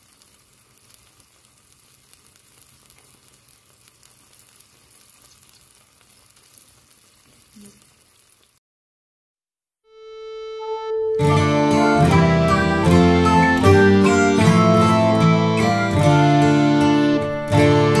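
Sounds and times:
curry simmering and bubbling: 0:00.0 - 0:08.6.

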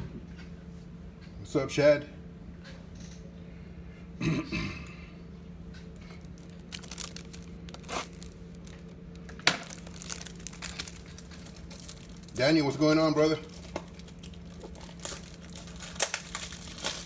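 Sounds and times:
plastic wrapping crinkling and tearing: 0:06.1 - 0:17.0.

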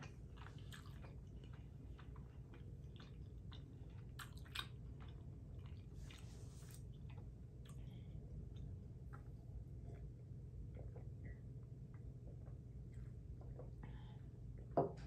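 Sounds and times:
close-up chewing: 0:00.0 - 0:11.2.

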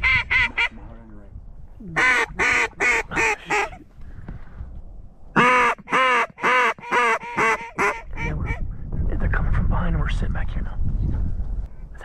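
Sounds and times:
duck quacking: 0:02.0 - 0:03.8, 0:05.4 - 0:08.6.

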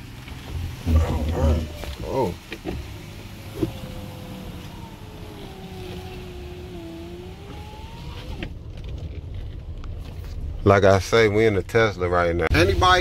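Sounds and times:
tyre and road noise: 0:00.0 - 0:13.0
electric car drive whining: 0:00.2 - 0:08.6.

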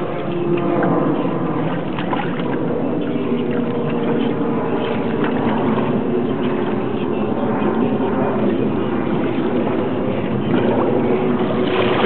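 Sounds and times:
boat engine running: 0:00.0 - 0:12.0
water sloshing against hull: 0:00.0 - 0:12.0.

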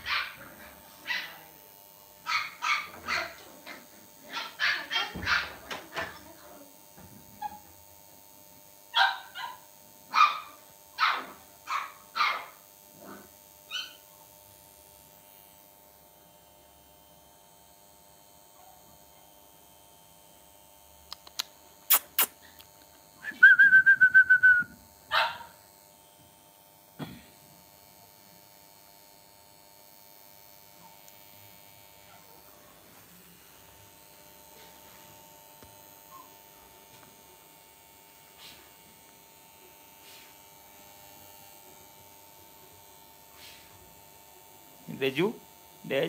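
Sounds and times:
dog barking: 0:00.0 - 0:00.5, 0:02.3 - 0:03.4, 0:04.3 - 0:05.6, 0:09.0 - 0:12.6, 0:18.6 - 0:18.8, 0:25.1 - 0:25.6
dog squealing: 0:13.7 - 0:14.0
sharp clicks: 0:21.1 - 0:22.7.

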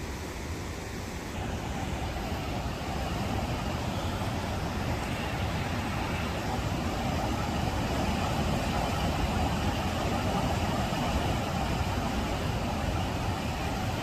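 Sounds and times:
river rapids rushing: 0:00.9 - 0:14.0.

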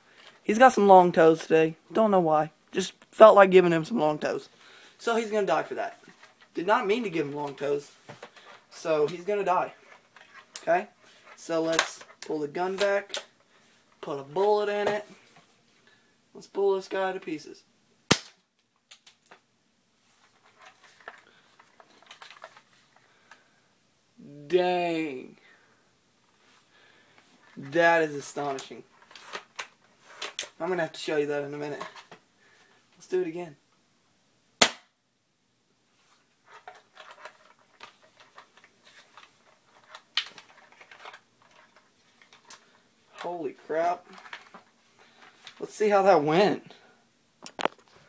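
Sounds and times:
faint clicks and rustles: 0:18.5 - 0:23.6, 0:35.9 - 0:45.7.

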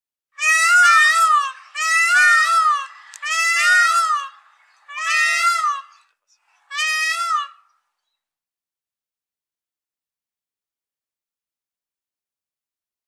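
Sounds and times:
peacock calling: 0:00.4 - 0:08.0.

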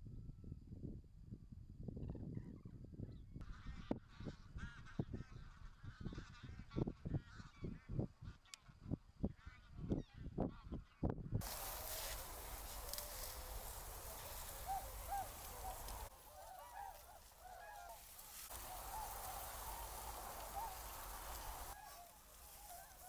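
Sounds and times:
steady hiss: 0:11.4 - 0:16.2, 0:17.0 - 0:23.0
flock of waterbirds honking: 0:11.4 - 0:23.0.

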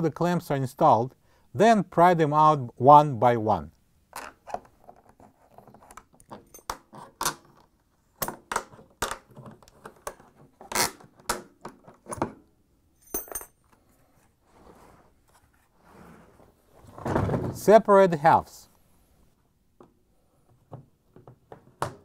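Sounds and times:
ringing metal clink: 0:13.0 - 0:13.6.

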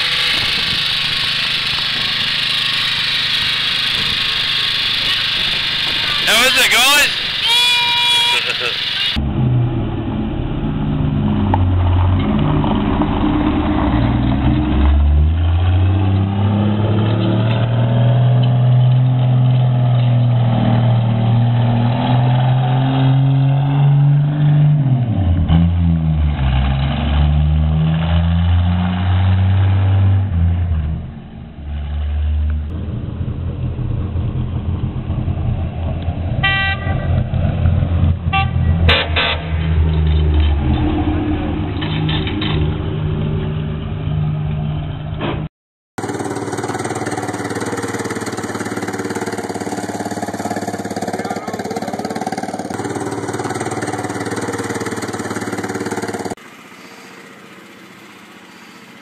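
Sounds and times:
miniature truck engine running: 0:00.0 - 0:09.2, 0:46.0 - 0:59.0
short horn toot: 0:06.0 - 0:08.8, 0:36.4 - 0:37.2, 0:38.3 - 0:39.5.

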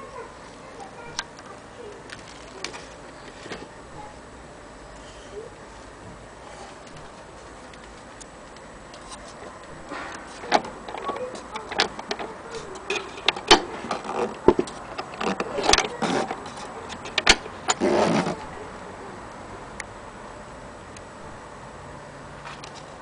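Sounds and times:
metallic clicks and knocks: 0:09.7 - 0:17.9
rough scrape: 0:15.2 - 0:16.7, 0:17.7 - 0:18.5.

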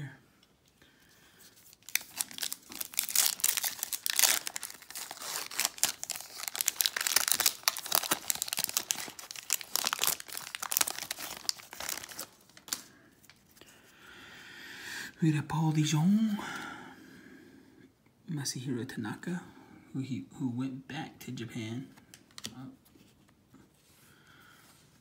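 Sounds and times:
foil wrapper crinkling and tearing: 0:01.5 - 0:13.4.

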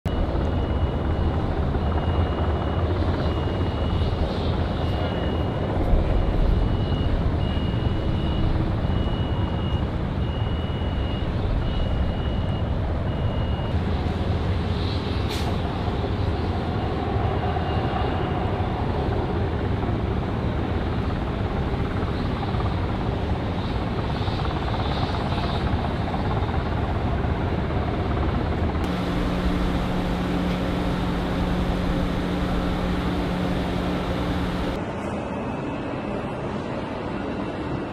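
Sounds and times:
vehicle reversing beeper: 0:00.1 - 0:13.9, 0:28.8 - 0:34.8
rumble of vehicles and machinery: 0:00.1 - 0:37.9
low two-note hum: 0:28.8 - 0:34.8.

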